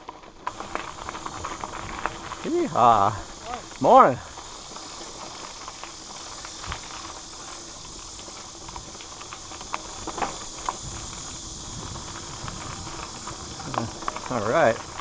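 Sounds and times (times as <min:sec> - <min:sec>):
bike clicks and rattles: 0:00.0 - 0:15.0
bike tyres rumbling on dirt: 0:00.0 - 0:15.0.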